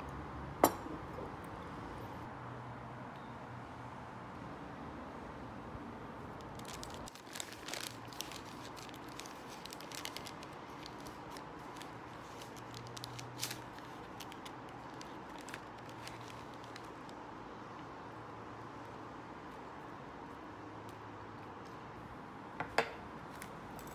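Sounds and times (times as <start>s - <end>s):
plastic bag crinkling: 6.4s - 17.2s.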